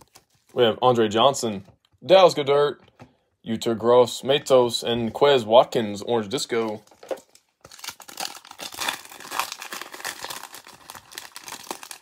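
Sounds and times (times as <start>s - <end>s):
foil wrapper crinkling: 6.7s - 12.0s.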